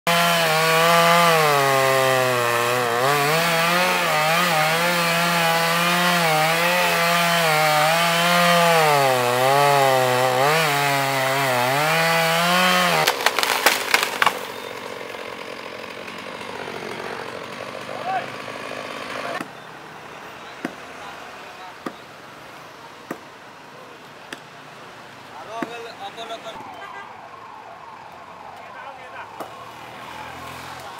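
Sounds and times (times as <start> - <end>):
wood cracking and branches snapping: 0.1 - 19.5
chainsaw cutting wood: 0.1 - 19.6.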